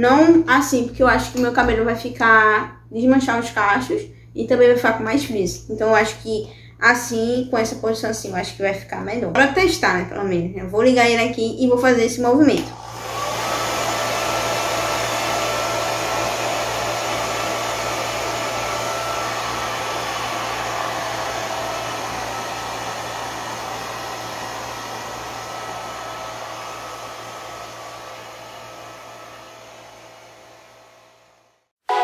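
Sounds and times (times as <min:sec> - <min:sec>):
hair dryer running: 0:12.6 - 0:32.0.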